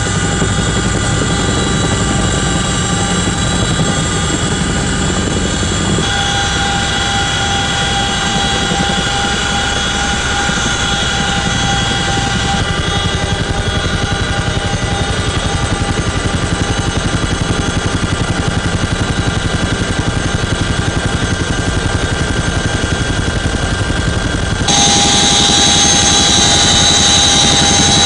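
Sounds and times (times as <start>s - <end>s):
gearbox whine: 0.0s - 28.0s
helicopter rotor and turbine drone: 0.0s - 28.0s
rotors pulsing beat: 24.7s - 28.0s.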